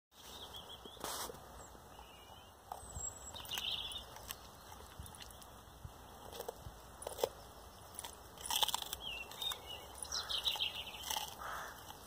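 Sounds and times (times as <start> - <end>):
birds singing: 0.2 - 12.0
dog crunching broccoli stalk: 2.7 - 5.6, 6.2 - 12.0.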